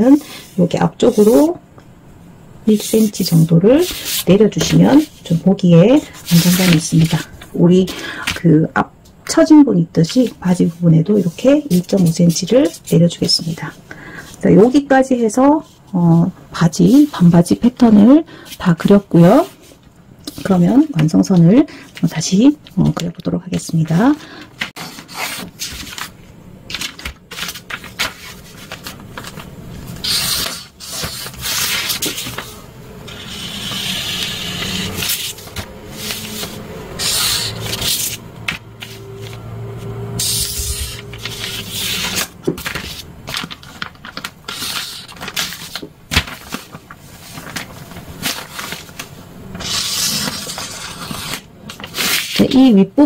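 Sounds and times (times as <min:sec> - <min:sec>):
marker scratching on paper: 0:33.1 - 0:35.4.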